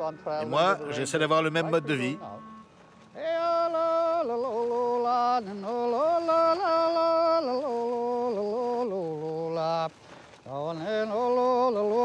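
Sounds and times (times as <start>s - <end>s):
person singing slowly: 3.1s - 9.9s
breath: 10.0s - 10.4s.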